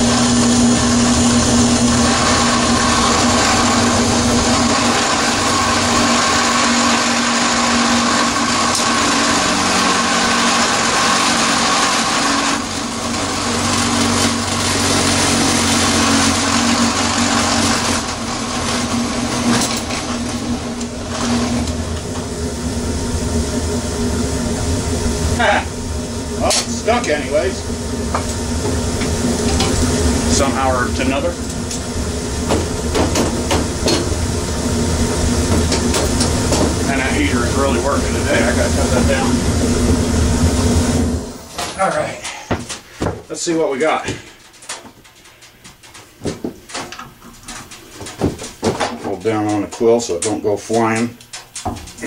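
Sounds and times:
drill press motor hum: 0:00.0 - 0:41.6.

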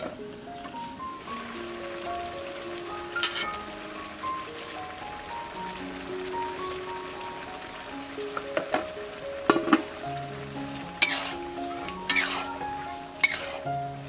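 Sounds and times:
soft background music: 0:00.0 - 0:14.0
stir-fry sizzling: 0:00.0 - 0:14.0
metal ladle clanking on wok: 0:03.2 - 0:03.6, 0:11.0 - 0:11.4, 0:12.0 - 0:12.6, 0:13.2 - 0:13.6.

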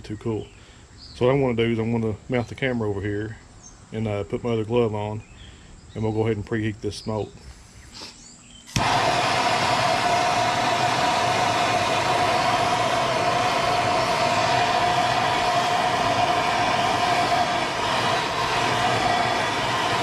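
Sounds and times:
gas torch hissing: 0:08.7 - 0:20.0.

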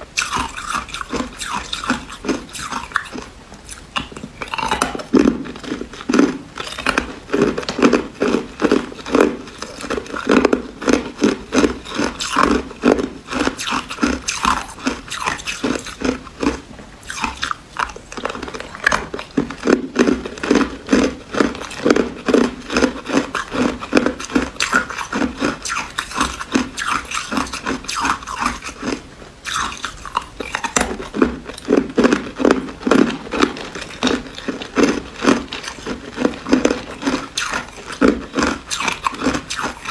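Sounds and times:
ice being chewed: 0:00.2 - 0:39.9.

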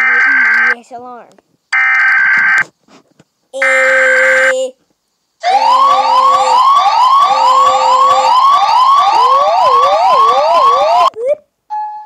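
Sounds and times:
steady low alarm tone: 0:00.0 - 0:00.8, 0:03.6 - 0:04.6, 0:05.4 - 0:11.1
rising whooping siren: 0:05.4 - 0:11.1
slower wavering siren: 0:05.4 - 0:11.1.

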